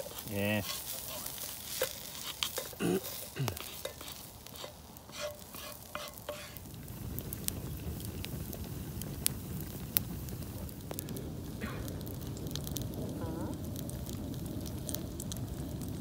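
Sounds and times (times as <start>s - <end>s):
spoon scraping metal pot: 0.0s - 6.6s
food sizzling: 0.0s - 16.0s.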